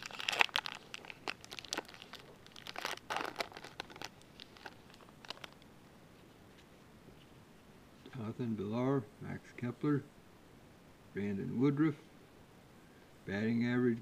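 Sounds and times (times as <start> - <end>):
card pack wrapper crinkling: 0.0 - 5.6.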